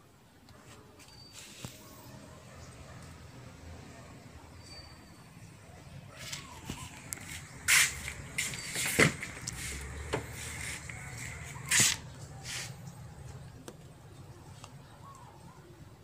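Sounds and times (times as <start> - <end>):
rustling handling noise: 6.1 - 13.4.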